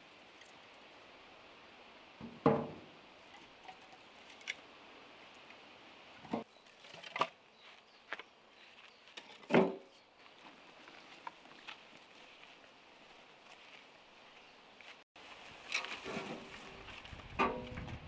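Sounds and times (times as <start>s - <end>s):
logs dropped into wheelbarrow: 6.2s - 7.4s, 9.1s - 10.6s, 15.6s - 18.0s.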